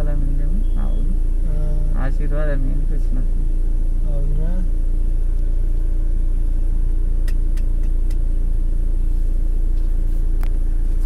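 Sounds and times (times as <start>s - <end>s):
vehicle engine rumble: 0.0s - 11.0s
faint sharp clicks: 7.2s - 8.2s.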